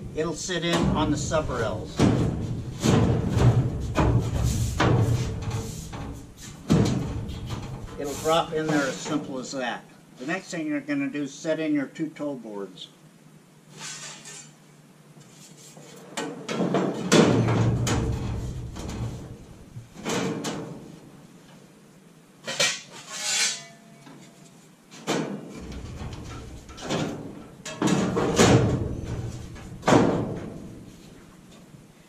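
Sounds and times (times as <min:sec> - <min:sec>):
sheet metal clanking: 0:00.1 - 0:09.2, 0:22.4 - 0:24.3, 0:25.0 - 0:30.8.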